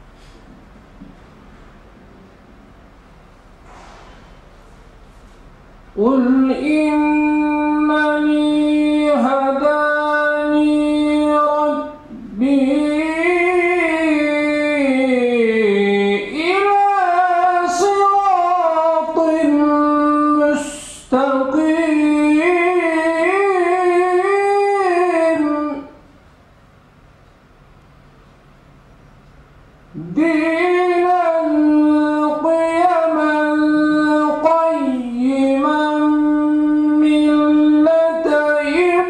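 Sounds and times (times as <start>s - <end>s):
man chanting melodically into microphone: 6.0s - 26.0s, 29.9s - 39.0s.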